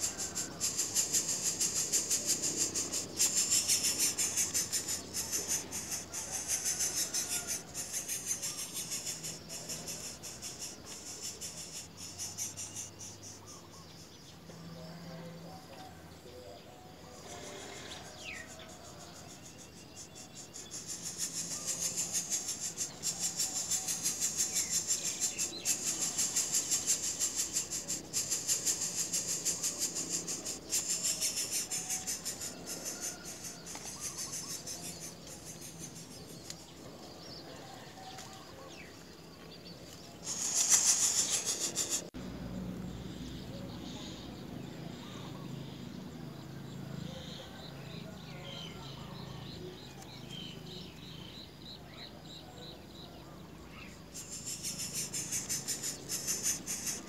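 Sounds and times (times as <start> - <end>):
insect buzzing in pulses: 0.0 - 13.6, 17.2 - 36.4, 40.2 - 42.2, 54.1 - 57.0.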